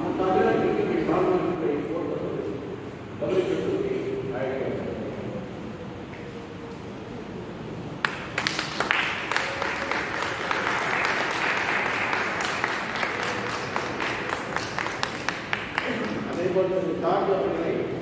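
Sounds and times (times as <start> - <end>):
people clapping: 8.0 - 16.9.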